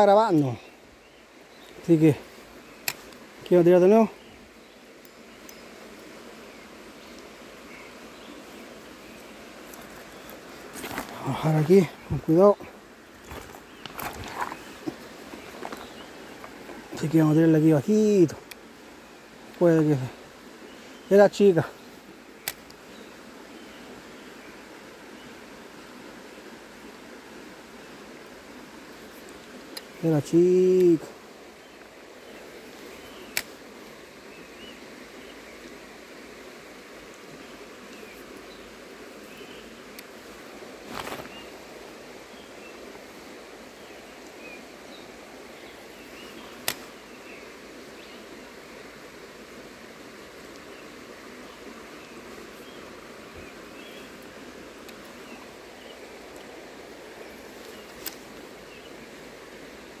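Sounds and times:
stream running over stones: 0:00.0 - 1:00.0
sharp click: 0:46.6 - 0:46.9.

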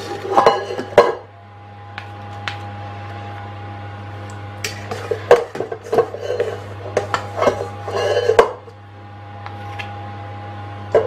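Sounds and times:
spoon scraping metal bowl: 0:00.0 - 0:01.1, 0:04.7 - 0:08.7.

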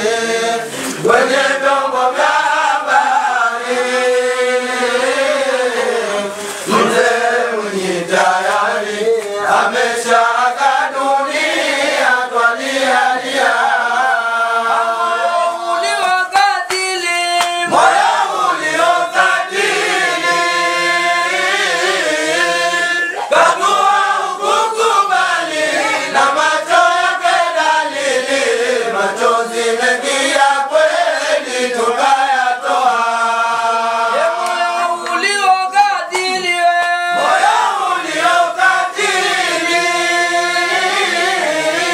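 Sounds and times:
men chanting together: 0:00.0 - 0:41.9.

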